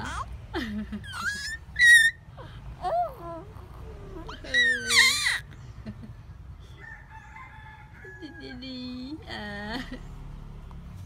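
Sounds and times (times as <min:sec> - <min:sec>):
baby cooing and squealing: 0:00.0 - 0:00.3, 0:01.0 - 0:05.5.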